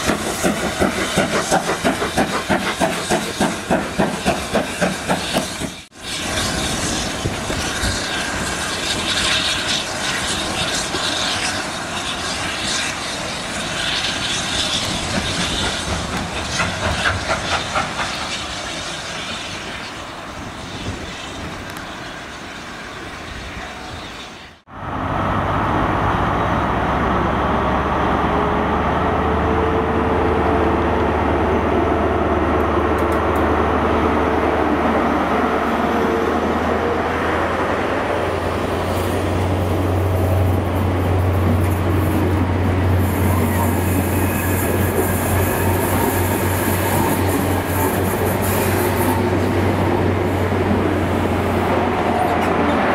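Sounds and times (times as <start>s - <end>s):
steam locomotive chuffing: 0.0s - 24.4s, 35.4s - 52.9s
train coaches rolling: 0.0s - 52.9s
diesel engine drone: 24.7s - 44.2s.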